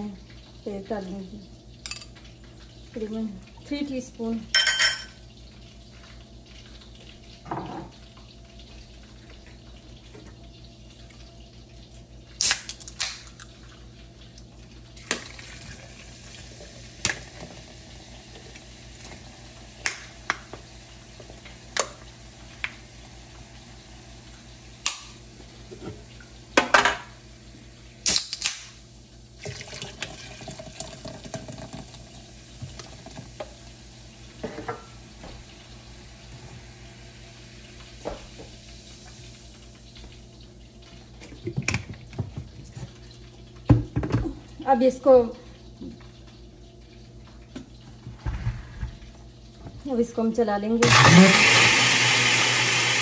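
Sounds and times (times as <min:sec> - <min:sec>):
soda pouring and fizzing: 0:05.2 - 0:44.7, 0:50.8 - 0:53.0.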